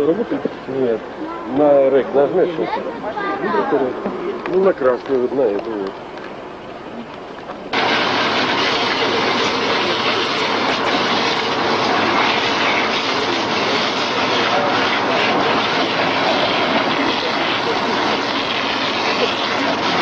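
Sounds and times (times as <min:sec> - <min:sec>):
heavy vehicle engine running: 0:07.7 - 0:20.0.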